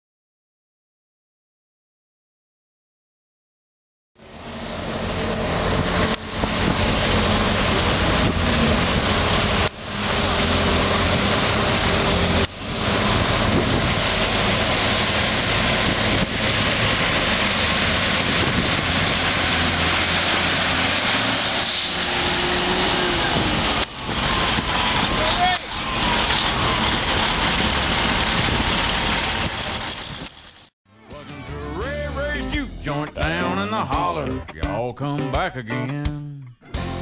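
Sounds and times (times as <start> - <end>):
diesel truck engine under load: 4.2 - 30.7.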